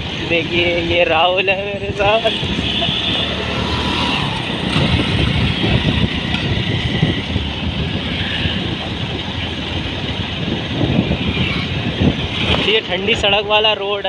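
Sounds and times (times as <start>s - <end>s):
road and wind noise: 0.0s - 14.0s
motorcycle engine running: 2.1s - 13.0s.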